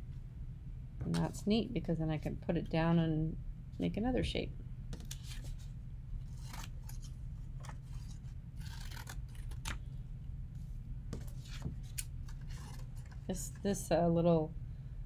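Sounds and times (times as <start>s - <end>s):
steady low hum: 0.0s - 15.0s
scissors snipping paper: 6.3s - 9.8s.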